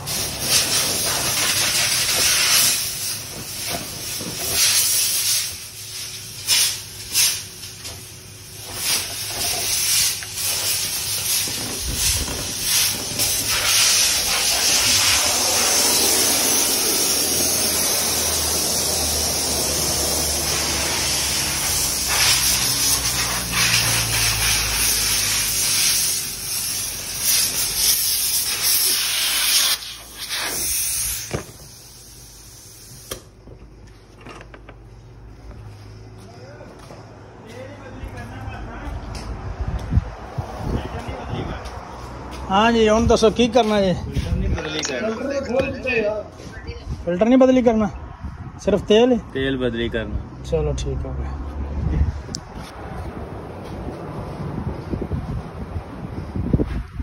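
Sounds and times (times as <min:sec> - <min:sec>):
compressed air hissing: 0:00.0 - 0:33.4.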